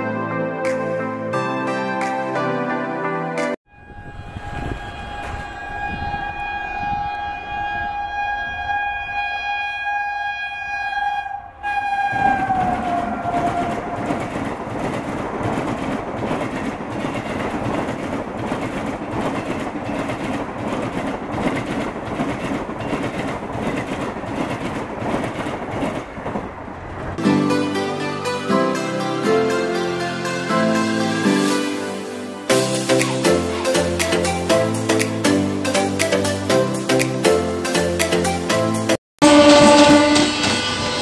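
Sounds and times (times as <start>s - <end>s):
train horn blast: 3.7s - 14.0s, 39.2s - 41.0s
train wheels clattering on rails: 12.2s - 27.2s.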